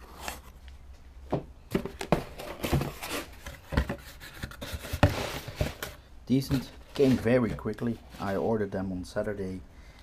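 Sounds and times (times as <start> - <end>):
cardboard box being handled: 1.7 - 8.4.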